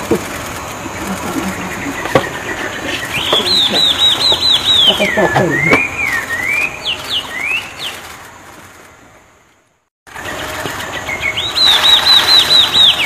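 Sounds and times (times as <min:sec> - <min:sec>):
songbird whistling: 0:01.0 - 0:08.1, 0:10.8 - 0:13.0.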